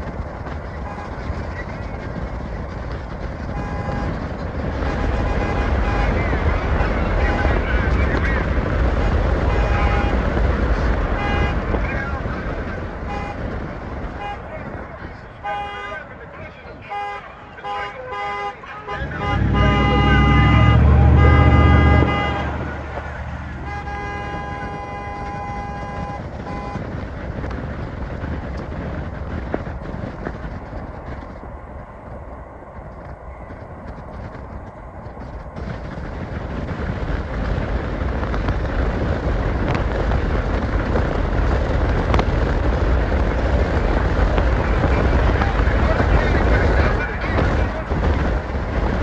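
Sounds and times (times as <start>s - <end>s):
car driving with road noise: 0.0s - 49.0s
car horn honking: 0.8s - 1.2s, 3.5s - 4.2s, 4.8s - 7.7s, 9.0s - 10.3s, 11.0s - 11.8s, 13.0s - 13.4s, 14.1s - 14.5s, 15.4s - 16.2s, 16.8s - 26.9s.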